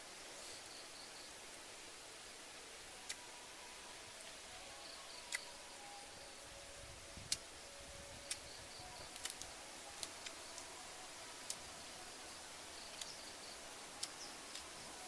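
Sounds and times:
faint insects chirping: 0.0s - 15.0s
steady hiss: 0.0s - 15.0s
clicks from handling leaves: 8.2s - 10.7s, 12.9s - 13.2s, 14.0s - 14.8s.

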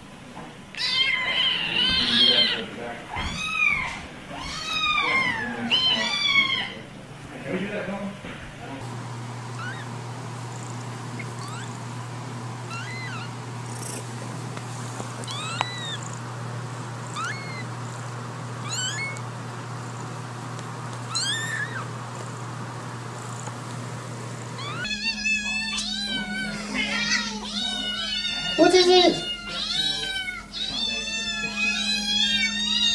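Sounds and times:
kitten mewing: 0.8s - 6.8s, 9.5s - 12.0s, 12.7s - 14.3s, 15.0s - 20.2s, 21.0s - 22.4s, 24.6s - 32.9s
kittens meowing loudly: 0.8s - 6.8s, 9.5s - 9.9s, 11.2s - 11.8s, 12.7s - 13.4s, 15.2s - 16.2s, 17.0s - 17.8s, 18.6s - 19.3s, 21.0s - 21.9s, 24.6s - 32.9s
steady low hum: 6.8s - 32.9s.

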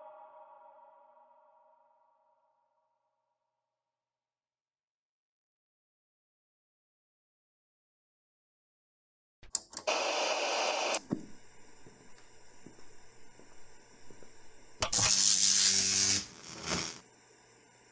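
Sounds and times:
click: 9.4s - 9.9s
television static hiss: 9.9s - 11.0s.

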